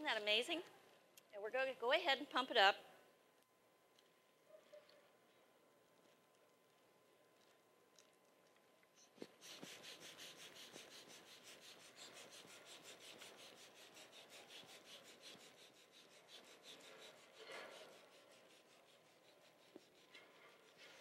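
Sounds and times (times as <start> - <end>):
balloon pump puffing air: 9.0 - 21.0.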